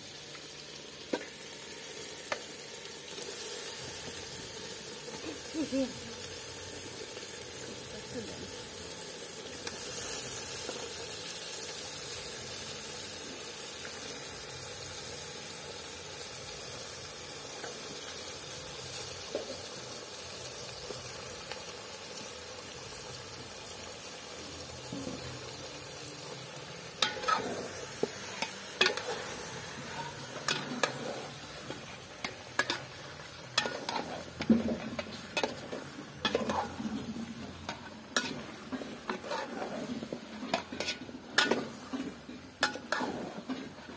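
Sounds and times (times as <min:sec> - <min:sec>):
meat sizzling in hot oil: 0:00.0 - 0:43.9
metal ladle scraping pot: 0:27.0 - 0:43.9.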